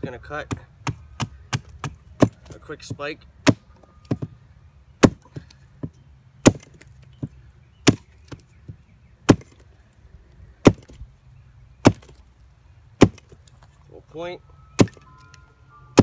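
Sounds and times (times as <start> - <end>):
hatchet chopping wood: 0.4 - 4.3, 5.0 - 8.5, 9.3 - 9.6, 10.6 - 11.0, 11.8 - 12.2, 13.0 - 13.4, 14.8 - 15.1.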